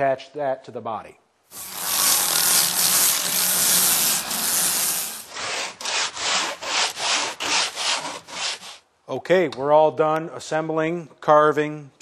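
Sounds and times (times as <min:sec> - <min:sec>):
sanding wood: 0:01.5 - 0:08.8.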